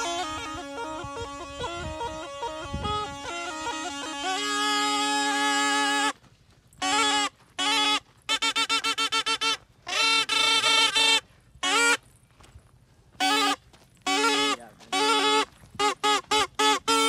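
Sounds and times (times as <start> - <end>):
reed pipe melody over drone: 0.0 - 6.2.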